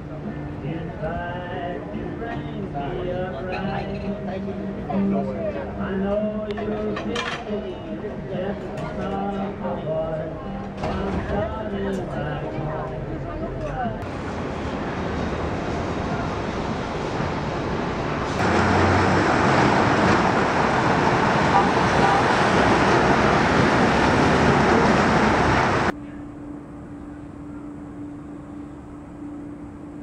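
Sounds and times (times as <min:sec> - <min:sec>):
city street traffic: 0:00.0 - 0:30.0
outdoor background: 0:00.0 - 0:30.0
steady low hum: 0:25.8 - 0:30.0.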